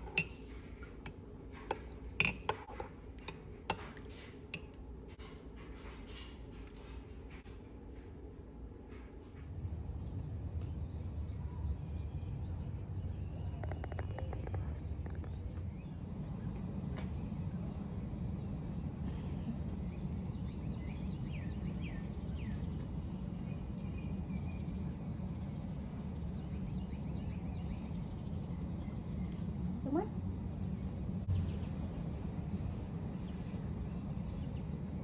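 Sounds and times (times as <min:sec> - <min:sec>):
steady low rumble: 0:07.3 - 0:35.0
small birds chirping: 0:09.7 - 0:35.0.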